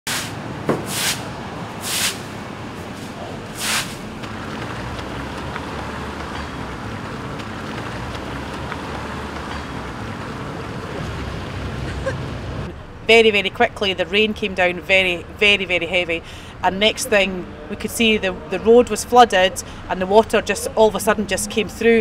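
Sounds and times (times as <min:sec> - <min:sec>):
broom swishing on wet floor: 0:00.1 - 0:02.3, 0:02.9 - 0:04.0.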